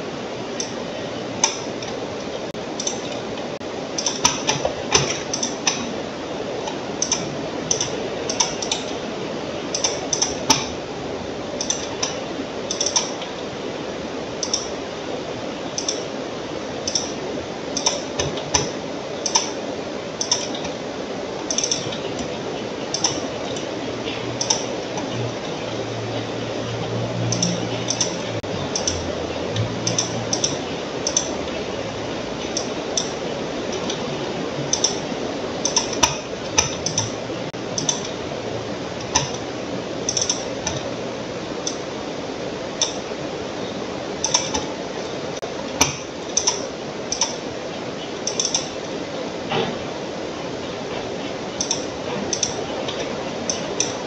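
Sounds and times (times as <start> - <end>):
low hum: 0.0 - 54.0
steady hiss: 0.0 - 54.0
computer mouse clicking: 2.8 - 3.2, 6.7 - 9.0, 9.7 - 10.7, 14.4 - 14.7, 15.8 - 16.1, 16.9 - 17.2, 20.2 - 20.8, 21.5 - 26.3, 27.2 - 31.6, 32.4 - 37.2, 48.2 - 48.8.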